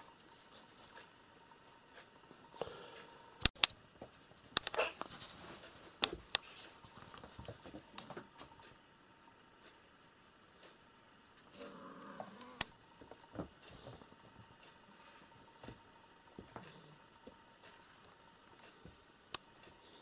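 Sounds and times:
paws scuffling on carpet: 4.2 - 8.6.

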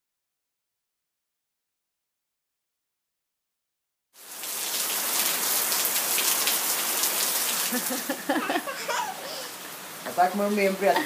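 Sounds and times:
heavy rain pouring: 4.2 - 11.0.

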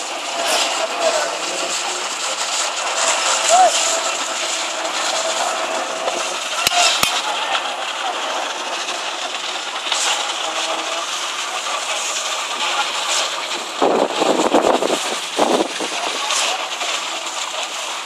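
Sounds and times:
construction machinery din: 0.0 - 18.0
workers calling out: 3.4 - 4.0.

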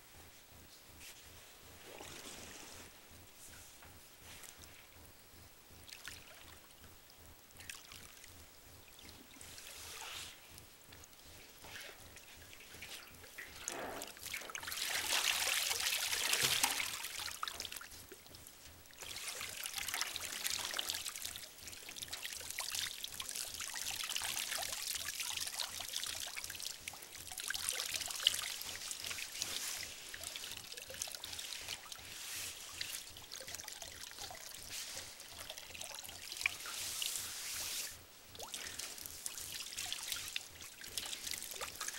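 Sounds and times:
water splashing in a metal tub: 12.6 - 17.9
water pouring off wet clothing: 12.8 - 17.9.

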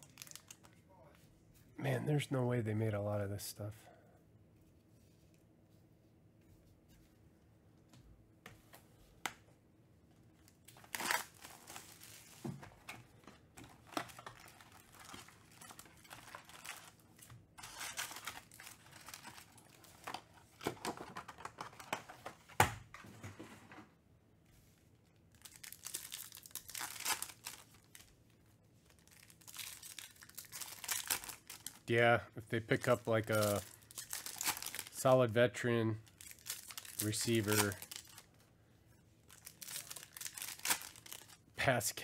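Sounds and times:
wrappers tearing and crinkling: 0.0 - 0.7, 10.4 - 12.5, 13.6 - 20.2, 25.3 - 28.1, 28.8 - 31.9, 32.7 - 35.2, 36.0 - 38.4, 39.2 - 41.4.

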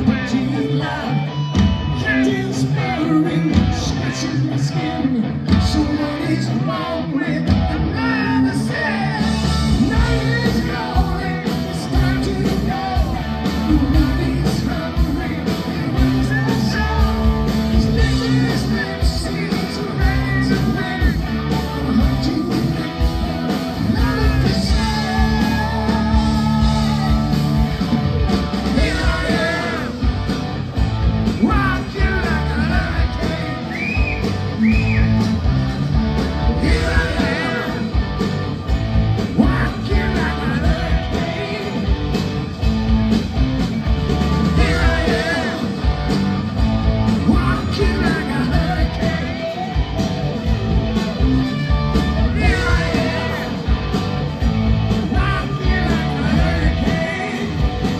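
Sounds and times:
lead singer: 0.0 - 35.5, 36.2 - 42.7, 44.2 - 50.4, 51.5 - 57.9
drums: 0.0 - 57.9
electric guitars: 0.0 - 57.9.

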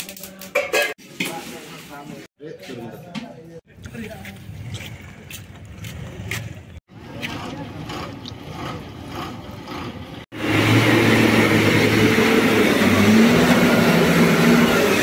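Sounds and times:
vehicle engine running loud: 7.0 - 15.0.

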